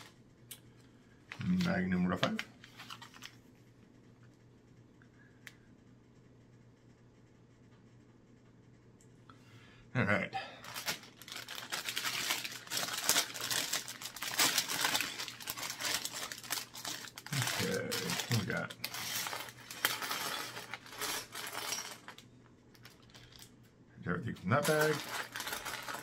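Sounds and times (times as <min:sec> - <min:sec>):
plastic bag crinkling: 0:10.6 - 0:22.2, 0:22.8 - 0:23.6, 0:24.3 - 0:26.0
plastic pieces clattering on wood: 0:10.7 - 0:22.2.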